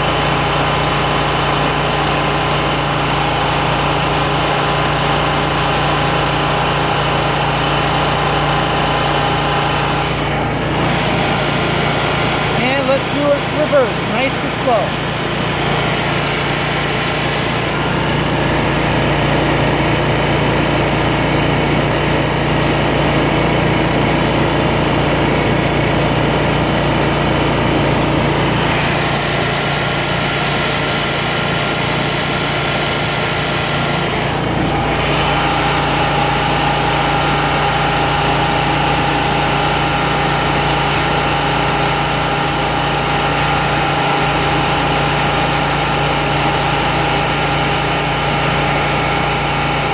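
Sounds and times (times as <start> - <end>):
mower engine running at high throttle: 0.0 - 49.9
steady whine: 9.1 - 21.3.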